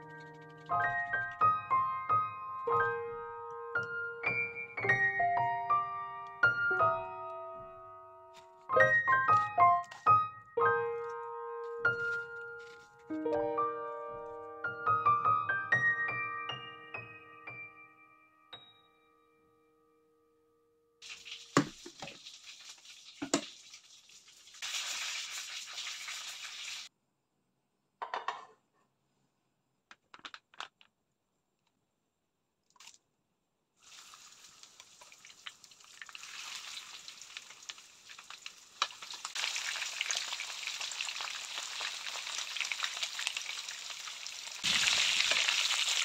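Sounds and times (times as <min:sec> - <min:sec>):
chicken frying in hot oil: 0:21.0 - 0:26.9, 0:33.8 - 0:46.0.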